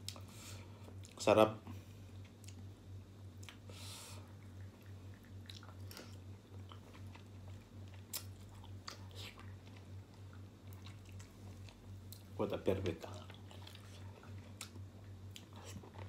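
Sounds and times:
steady low hum: 0:00.0 - 0:16.0
person chewing with wet clicks: 0:00.9 - 0:01.2, 0:02.2 - 0:12.4, 0:13.0 - 0:16.0.

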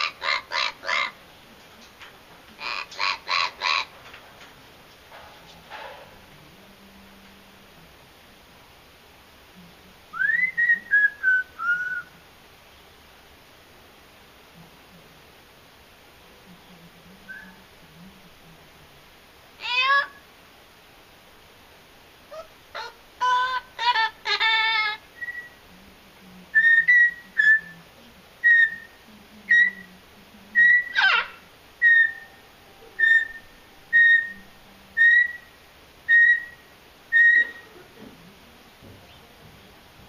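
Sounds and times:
parrot calls: 0:00.0 - 0:01.2, 0:02.6 - 0:04.0, 0:19.6 - 0:20.3, 0:22.3 - 0:25.6, 0:26.5 - 0:27.8, 0:28.4 - 0:29.9, 0:30.6 - 0:37.8
parrot whistling: 0:22.3 - 0:25.6, 0:26.5 - 0:27.8, 0:28.4 - 0:28.9, 0:29.5 - 0:29.9, 0:30.6 - 0:32.4, 0:33.0 - 0:37.7.

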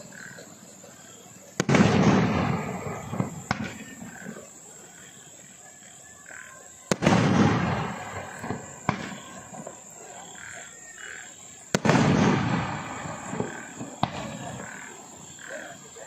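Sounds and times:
firework boom: 0:01.6 - 0:04.2, 0:06.9 - 0:09.8, 0:11.7 - 0:14.9
firework sharp crack: 0:01.6 - 0:05.1, 0:06.9 - 0:15.8.

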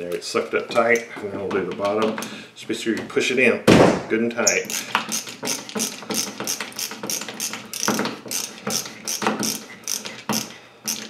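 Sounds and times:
ratcheting screwdriver clicking: 0:04.5 - 0:11.0.

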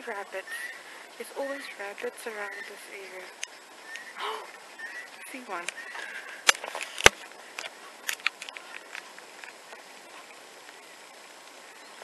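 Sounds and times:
faint outdoor hiss: 0:00.0 - 0:12.0.

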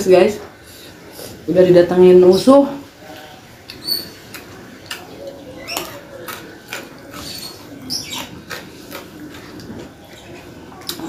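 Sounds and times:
wet chewing and lip smacks: 0:03.6 - 0:11.0
high squeaks: 0:07.1 - 0:08.4.

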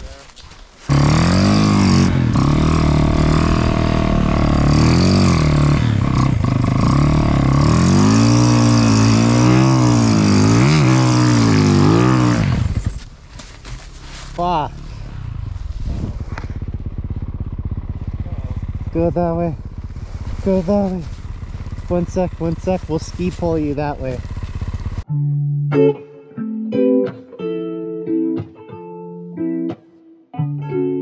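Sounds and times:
snowmobile engine revving: 0:00.9 - 0:13.0, 0:13.9 - 0:25.0.

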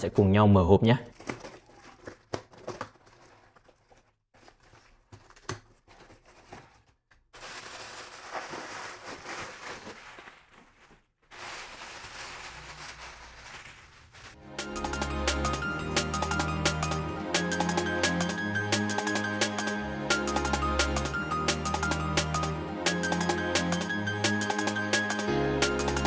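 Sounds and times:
plastic packing wrap crinkling: 0:01.0 - 0:14.4
cardboard being handled: 0:01.1 - 0:14.4.

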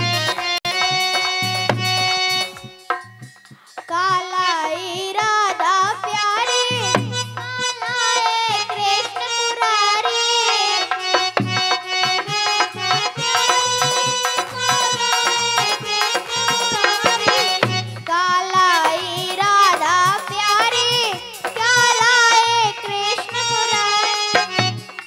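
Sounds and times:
hand drum rhythm: 0:00.0 - 0:09.3, 0:11.0 - 0:25.0
held melody instrument: 0:00.0 - 0:25.0
girl singing: 0:03.8 - 0:24.8.

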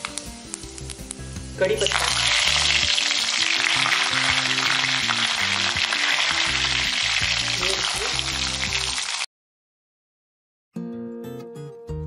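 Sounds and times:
hot oil sizzling: 0:00.0 - 0:09.3.

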